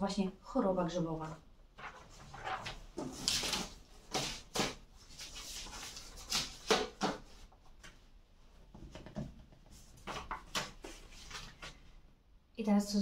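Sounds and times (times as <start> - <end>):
paper sheets rustling: 1.7 - 8.0, 9.7 - 12.0.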